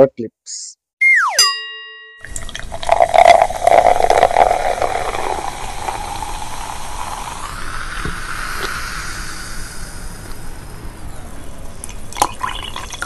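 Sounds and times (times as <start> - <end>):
crackles and pops: 2.3 - 9.4, 11.8 - 13.0
steady hissing noise: 2.3 - 13.0.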